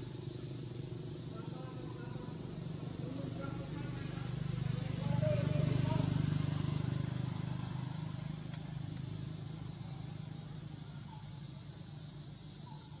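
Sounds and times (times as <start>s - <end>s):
engine running: 0.6s - 10.8s.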